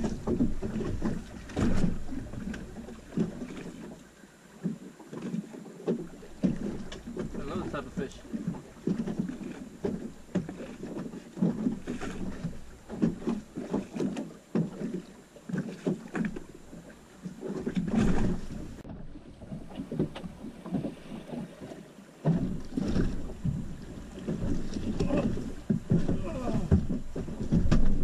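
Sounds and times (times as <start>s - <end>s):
wind rumble on microphone: 0.0s - 3.3s
water slapping against boat hull: 0.0s - 28.0s.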